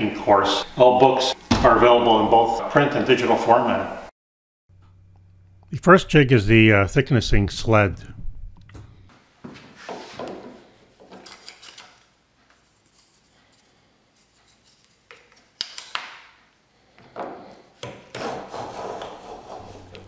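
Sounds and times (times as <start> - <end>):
plane shaving wood: 18.2 - 20.0.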